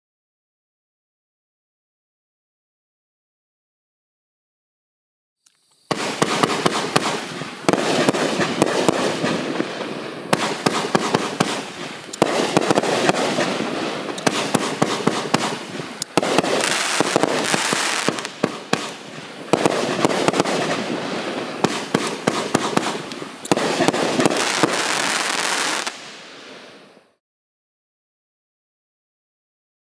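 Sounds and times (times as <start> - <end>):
fireworks crackling: 5.5 - 27.2.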